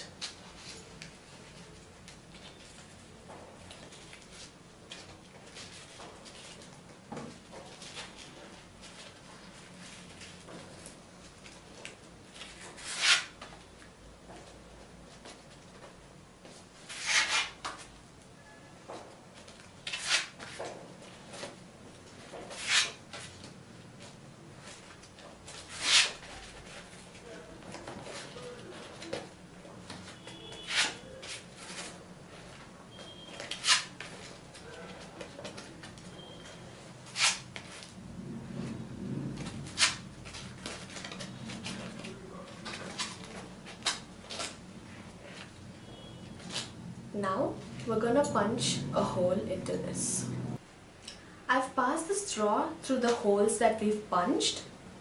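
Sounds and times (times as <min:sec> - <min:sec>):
paper folding and rubbing: 0:12.3 - 0:13.4, 0:16.8 - 0:17.9, 0:19.8 - 0:21.5, 0:22.2 - 0:23.4, 0:24.0 - 0:29.2, 0:30.1 - 0:32.6, 0:33.4 - 0:35.9, 0:37.0 - 0:38.0, 0:38.7 - 0:45.5.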